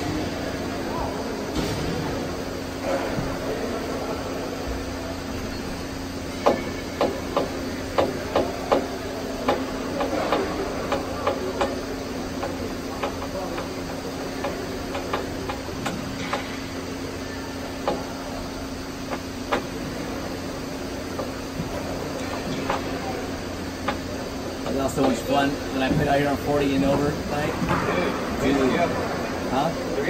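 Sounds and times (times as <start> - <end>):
steady hum: 0.0 - 30.0.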